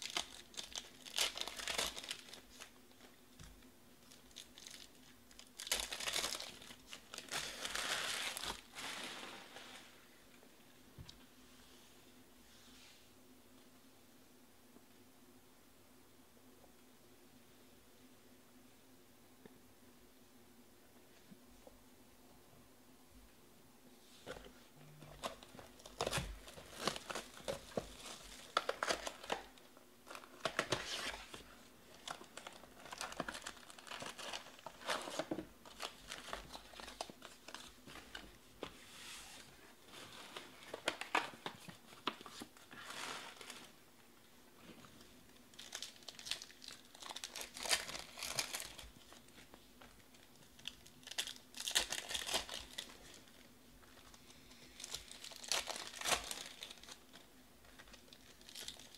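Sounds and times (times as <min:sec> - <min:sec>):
foil wrappers crinkling and tearing: 0:00.0 - 0:03.2, 0:04.0 - 0:09.2, 0:25.1 - 0:38.3, 0:45.5 - 0:58.9.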